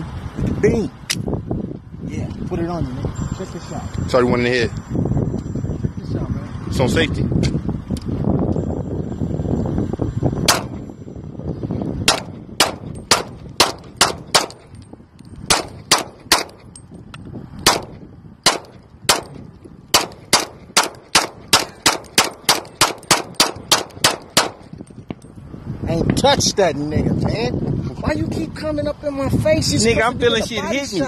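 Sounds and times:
pistol shots: 10.5s - 10.8s, 12.0s - 14.6s, 15.5s - 16.6s, 17.6s - 24.7s.

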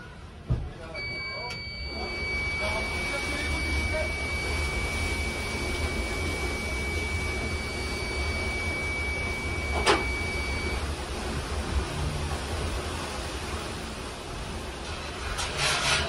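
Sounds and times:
low machinery hum: 0.0s - 16.0s
thin high whine: 1.0s - 11.0s.

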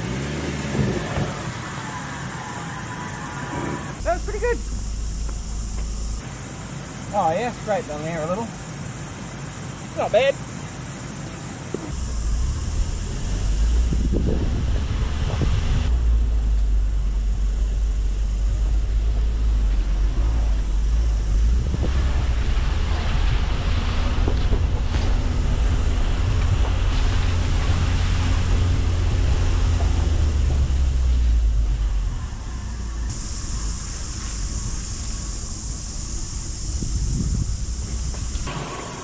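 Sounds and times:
van driving on dirt track: 0.0s - 39.0s
vehicle knocking over bumps: 0.6s - 1.7s, 18.6s - 31.8s
wind buffeting microphone: 12.4s - 32.1s, 36.0s - 38.5s.

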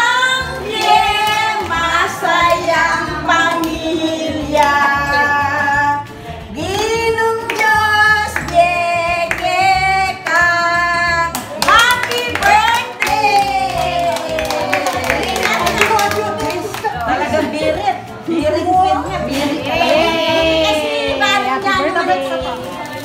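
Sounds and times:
people singing a birthday song: 0.0s - 22.9s
hands clapping: 6.7s - 8.7s, 11.3s - 17.3s.

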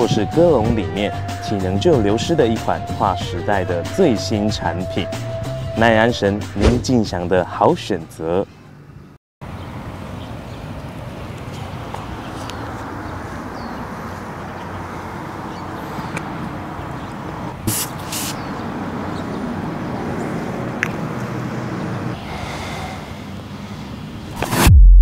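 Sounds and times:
city traffic rumble: 0.0s - 24.7s
aerosol spray can hissing: 17.7s - 18.4s.

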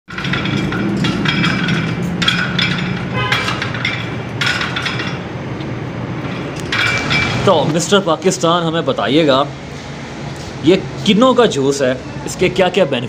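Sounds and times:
weight stack clinking: 0.1s - 8.0s.

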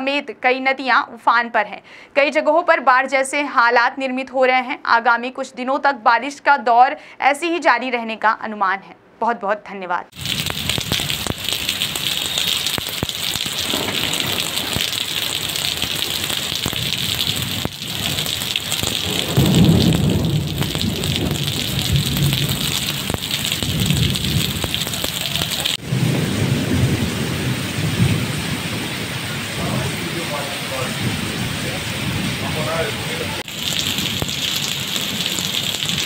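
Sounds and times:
heavy rain on pavement: 10.1s - 36.0s.

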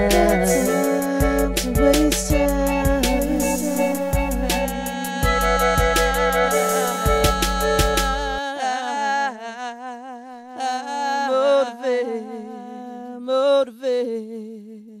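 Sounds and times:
hip-hop beat: 0.0s - 8.4s
woman singing with vibrato: 0.0s - 13.2s.

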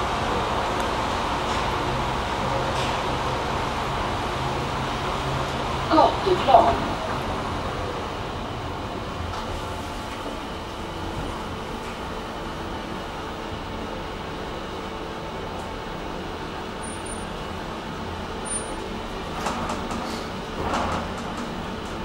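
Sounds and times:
elevator mechanical hum: 0.0s - 22.0s.

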